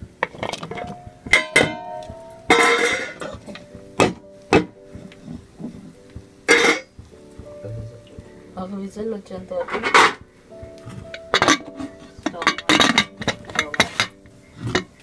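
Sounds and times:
metal cookware clanging: 0.2 - 4.8, 6.5 - 6.9, 9.5 - 10.2, 10.9 - 15.0.

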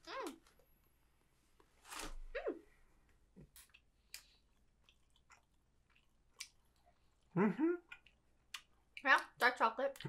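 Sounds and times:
chewing chocolate: 3.5 - 10.0
breathy voice humming mm: 7.3 - 8.0.

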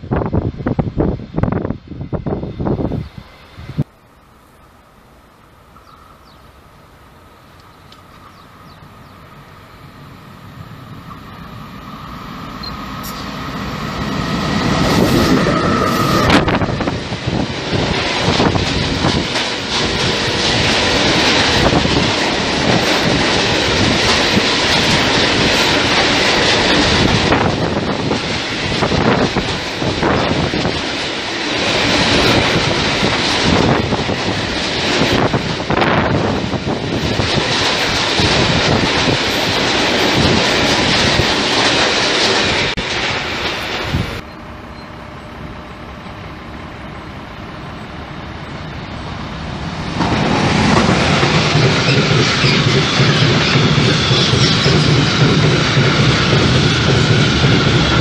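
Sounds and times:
freight train passing: 0.0 - 58.0
wheels clacking over rail joints: 10.6 - 44.3, 49.7 - 58.0.

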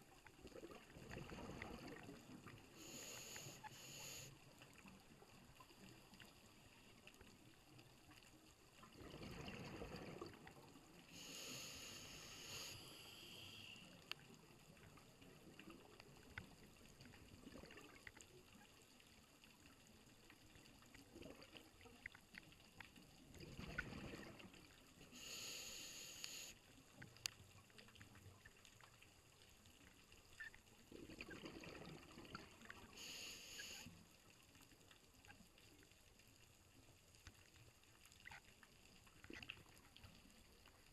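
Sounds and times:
diver breathing through regulator: 2.8 - 4.4, 11.1 - 13.9, 25.1 - 26.6, 33.0 - 33.9
faint clicks: 11.9 - 23.1, 26.1 - 30.8.

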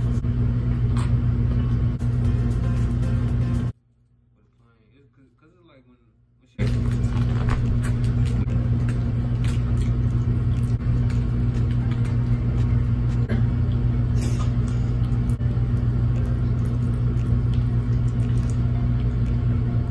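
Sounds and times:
loud low hum: 0.0 - 4.3, 6.1 - 19.9
crunchy food being eaten: 6.6 - 19.7
chewing and mouth sounds: 6.6 - 19.9.

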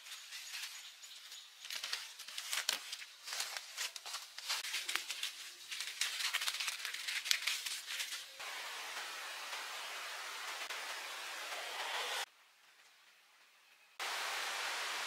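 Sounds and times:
rustling and crackling: 0.0 - 8.4
steady hiss: 8.4 - 12.8, 14.0 - 15.0.

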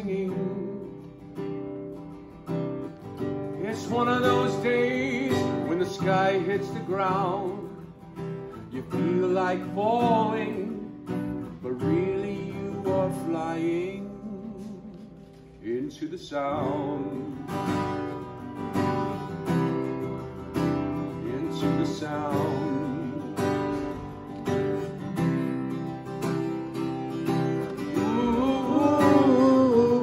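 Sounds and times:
man singing with vibrato: 0.0 - 1.2, 3.5 - 18.2, 21.0 - 25.0, 27.4 - 30.0
strummed ukulele: 16.6 - 30.0.

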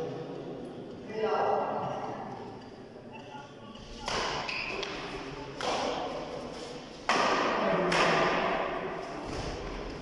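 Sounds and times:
racket hitting shuttlecock: 4.0 - 6.2, 7.0 - 9.8.

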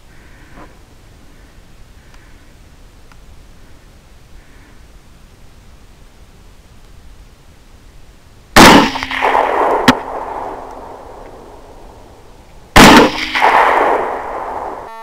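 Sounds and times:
rifle shots with rolling echo: 8.6 - 15.0.

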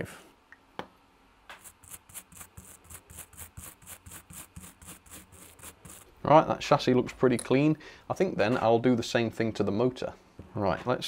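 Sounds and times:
toothbrush scrubbing metal gear: 1.5 - 6.2.

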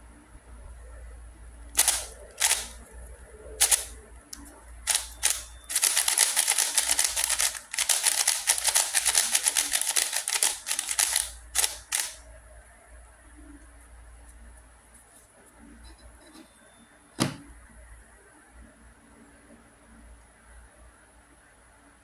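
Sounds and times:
plastic puzzle cube clacking: 4.9 - 12.2.

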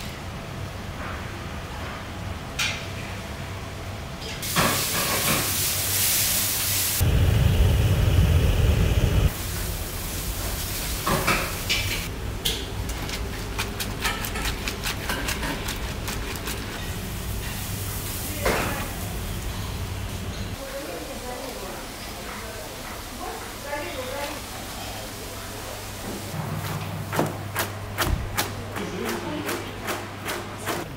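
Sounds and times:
water boiling with steamy hiss: 4.4 - 12.1, 15.9 - 26.4.

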